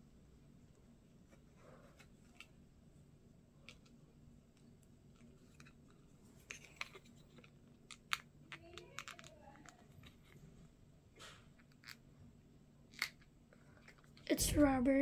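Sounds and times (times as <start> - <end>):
small plastic parts clicking: 6.5 - 10.2.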